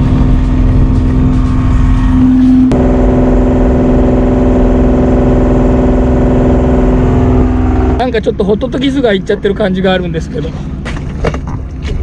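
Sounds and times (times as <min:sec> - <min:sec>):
boat engine running: 0:00.0 - 0:08.2.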